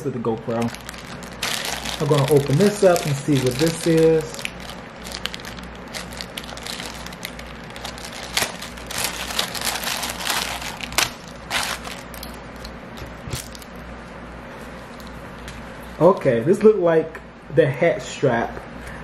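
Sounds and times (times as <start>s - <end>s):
plastic bag crinkling: 0.3s - 13.8s.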